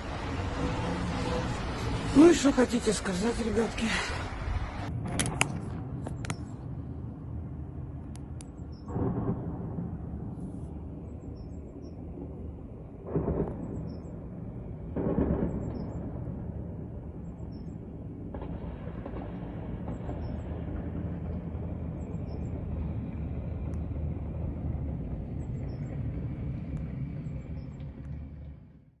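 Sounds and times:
heavy vehicle engines rumbling: 0:00.0 - 0:04.9, 0:19.8 - 0:28.8.

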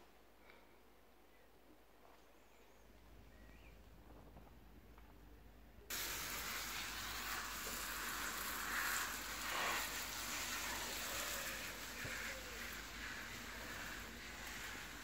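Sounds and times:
hiss of water spray: 0:05.9 - 0:15.0.

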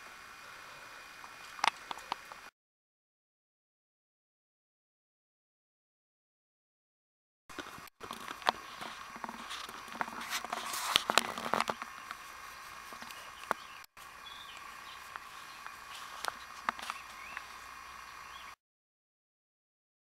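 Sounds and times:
puppy rustling in grass: 0:07.6 - 0:17.7.

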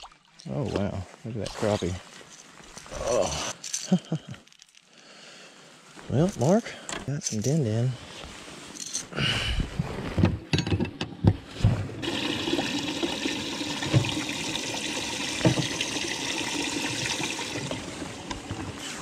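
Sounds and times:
water rushing: 0:12.0 - 0:18.3.

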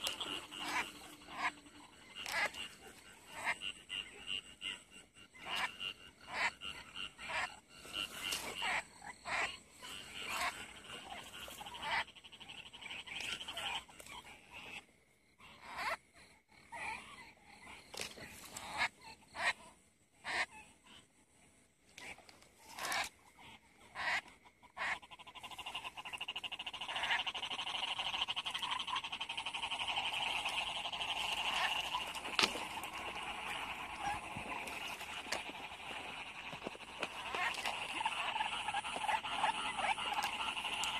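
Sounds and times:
frogs croaking: 0:00.0 - 0:40.9
fast steady trill: 0:25.5 - 0:40.9.

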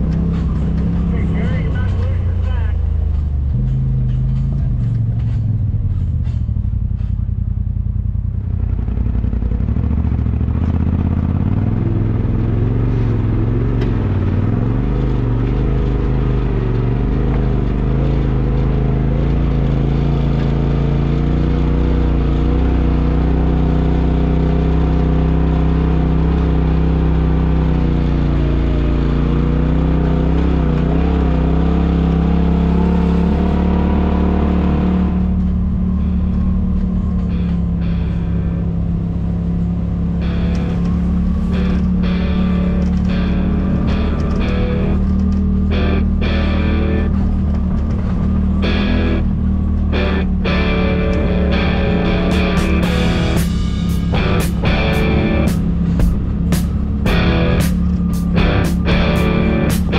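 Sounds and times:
utility vehicle engine running: 0:00.0 - 0:59.9
knocks and rattles: 0:02.9 - 0:07.3.

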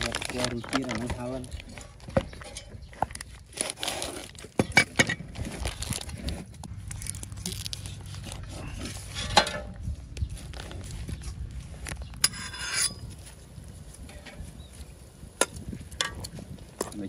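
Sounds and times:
plastic film crinkling and tearing: 0:00.0 - 0:02.0, 0:03.1 - 0:04.6, 0:05.2 - 0:09.2.

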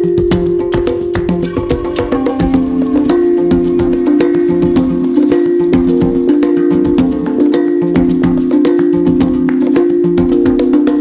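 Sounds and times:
quick steady percussion beat: 0:00.0 - 0:11.0
held melodic notes: 0:00.9 - 0:10.2.

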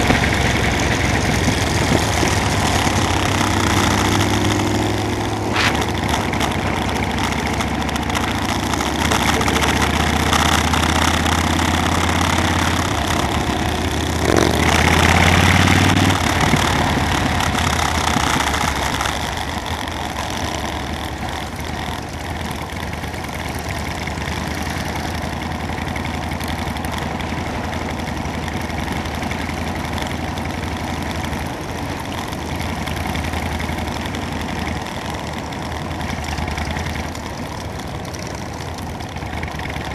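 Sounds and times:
rushing noise: 0:00.0 - 0:07.6
motorcycle engine running: 0:00.0 - 0:39.9.

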